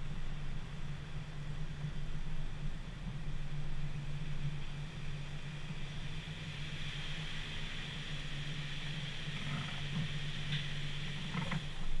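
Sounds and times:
faint ticks: 9.2 - 12.0.

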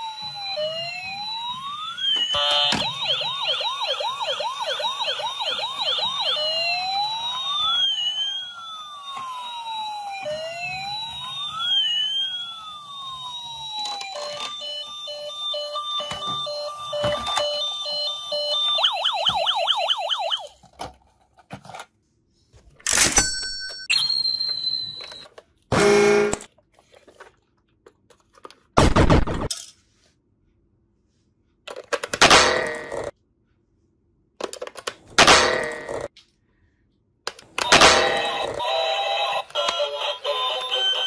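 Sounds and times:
toy electronic siren: 0.0 - 20.6, 23.9 - 26.5, 37.6 - 41.0.

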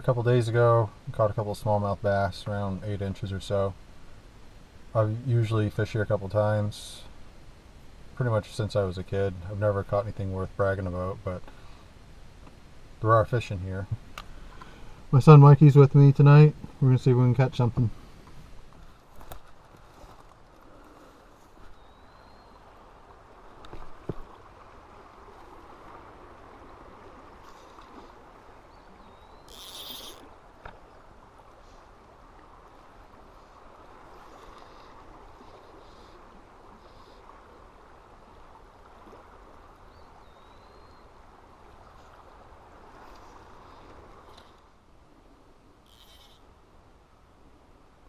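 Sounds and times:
rising bird chirps: 21.7 - 22.6, 28.7 - 30.2.

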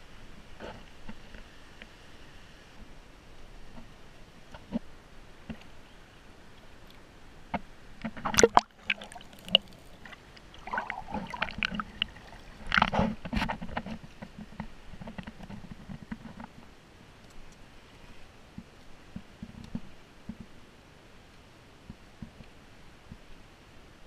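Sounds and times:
water splashing and sloshing: 8.0 - 16.6.

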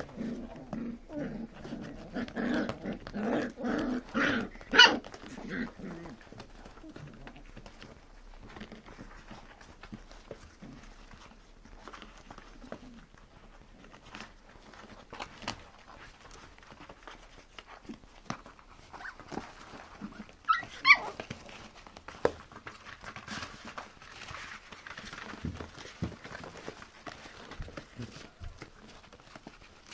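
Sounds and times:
puppies scuffling on a blanket: 0.0 - 29.9
puppy high-pitched yelp: 4.4 - 5.2, 18.9 - 19.4, 20.1 - 21.3.

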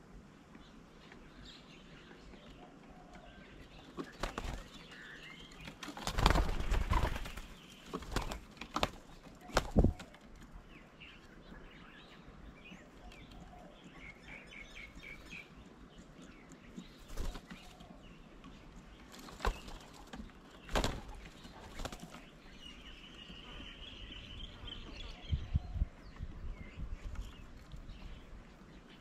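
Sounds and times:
dove wings flapping: 4.0 - 4.9, 5.6 - 10.4, 17.0 - 17.8, 19.1 - 22.3.

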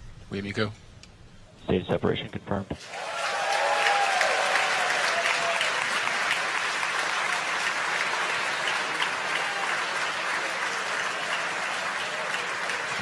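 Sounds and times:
crowd applauding: 2.8 - 13.0.

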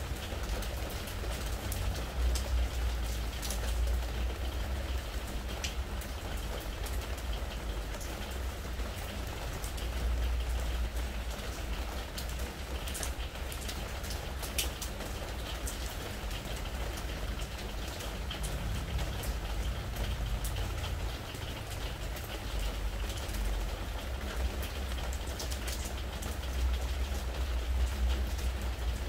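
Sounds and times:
rain pattering on wooden deck: 0.0 - 29.0.

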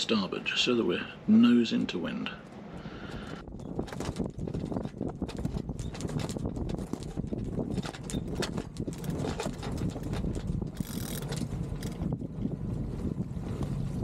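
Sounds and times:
low wind and water rumble: 0.0 - 14.0
winch ratcheting clicks: 7.7 - 12.0.

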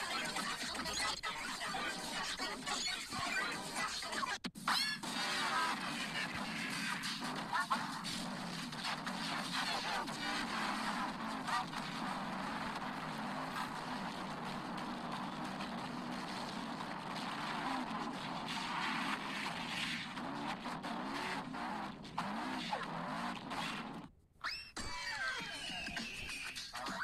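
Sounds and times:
distorted noisy rush: 5.0 - 24.0.

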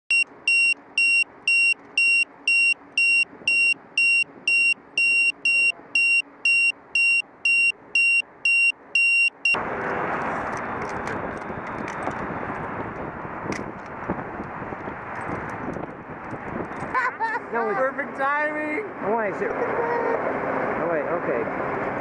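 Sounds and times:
electronic beeper short high beeps: 0.1 - 9.6.

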